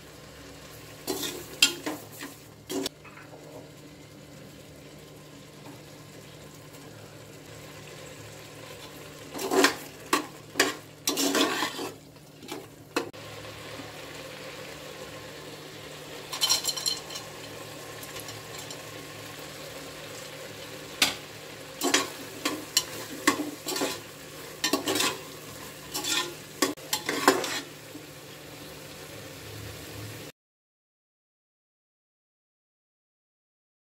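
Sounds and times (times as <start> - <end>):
faint sizzle: 0.0 - 30.3
metal spoon scraping a pot: 1.0 - 3.3, 9.3 - 12.7, 16.3 - 18.9, 21.8 - 27.8
nuts clattering into pot: 16.3 - 18.8.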